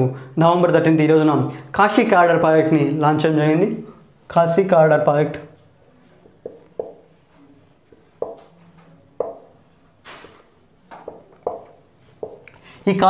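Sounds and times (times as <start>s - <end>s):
marker writing on whiteboard: 5.3s - 12.5s.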